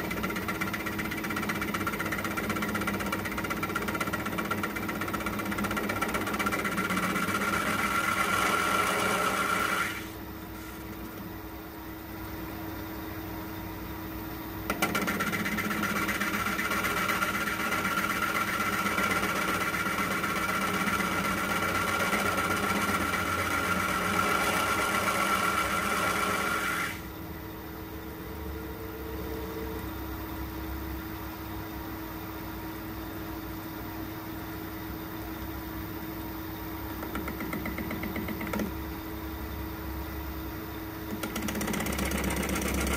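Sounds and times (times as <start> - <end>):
metal lathe humming: 0.0 - 10.2, 14.7 - 27.1
bright machining noise: 0.0 - 10.8, 14.7 - 27.1.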